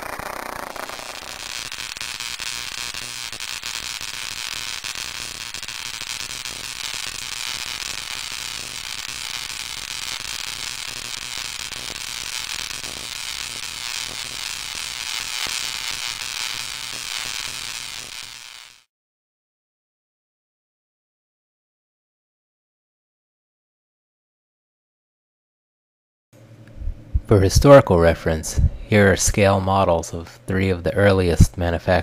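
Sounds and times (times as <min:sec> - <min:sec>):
tesla coil buzzing crackle: 0:00.0 - 0:18.9
low hum: 0:26.4 - 0:29.2.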